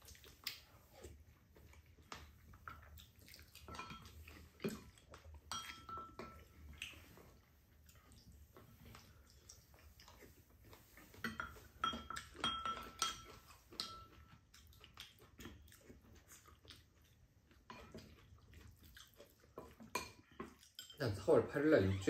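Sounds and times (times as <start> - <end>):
cutlery clinking against ceramic bowls: 3.6 - 6.8, 11.1 - 14.4, 19.6 - 21.3.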